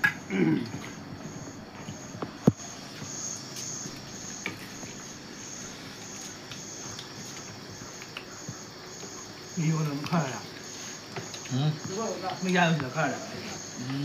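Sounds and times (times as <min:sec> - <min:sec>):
cricket chirping: 0:00.0 - 0:14.0.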